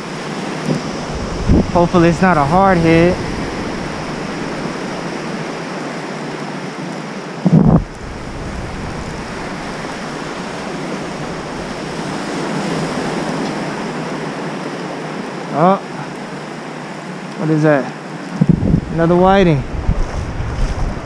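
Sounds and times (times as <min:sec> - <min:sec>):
wind on microphone: 0:00.0 - 0:05.6, 0:07.4 - 0:14.0, 0:18.3 - 0:21.0
surf washing in and out: 0:00.0 - 0:21.0.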